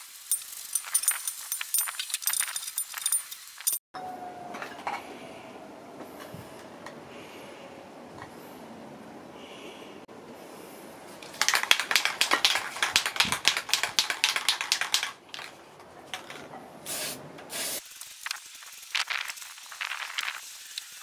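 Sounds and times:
spray paint can sputtering: 0:11.3 - 0:15.5, 0:16.9 - 0:21.0
short bursts of spray: 0:16.8 - 0:21.0.

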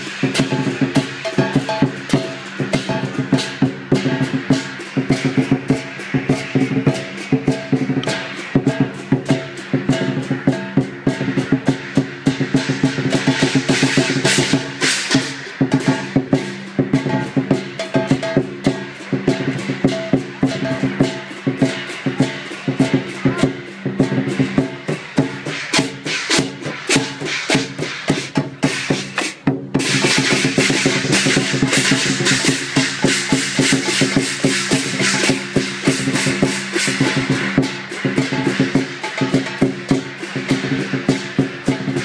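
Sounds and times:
crashing cymbals: 0:00.0 - 0:42.0
large drum beating fast rhythm: 0:00.0 - 0:42.0.

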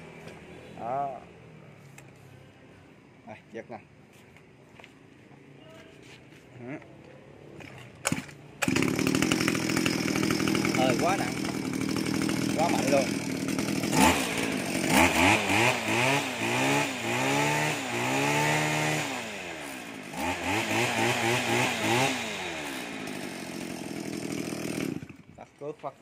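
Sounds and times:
brush cutter engine revving: 0:07.6 - 0:25.6.

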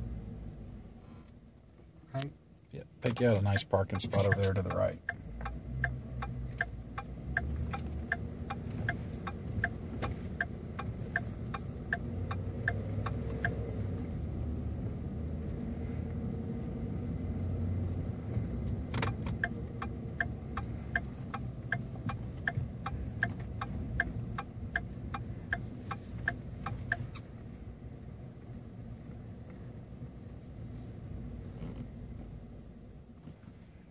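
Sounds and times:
low engine rumble: 0:00.0 - 0:33.9
turn signal clicking: 0:03.0 - 0:33.4.

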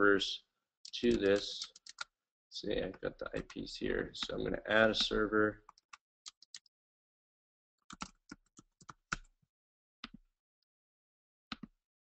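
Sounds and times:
faint keyboard typing: 0:00.9 - 0:02.1, 0:02.8 - 0:06.7, 0:07.9 - 0:09.3.

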